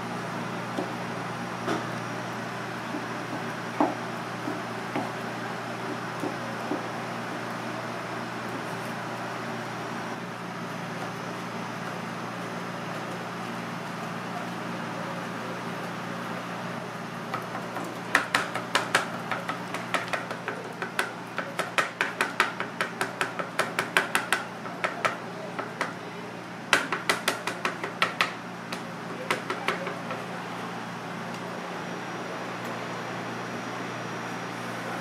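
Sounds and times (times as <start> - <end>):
knife tapping on plastic board: 17.3 - 26.0, 26.7 - 30.2.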